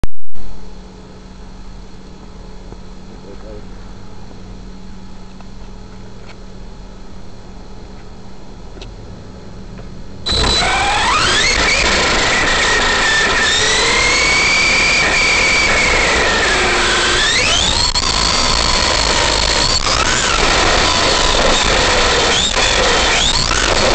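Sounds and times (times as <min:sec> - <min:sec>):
rc truck electric motor whining: 0:10.2 - 0:23.9.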